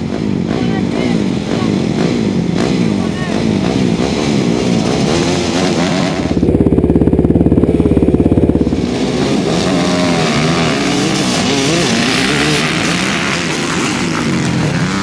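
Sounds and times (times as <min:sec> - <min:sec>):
motocross engines idling and revving: 0:00.0 - 0:15.0
engine fast pulsing beat: 0:04.8 - 0:10.2.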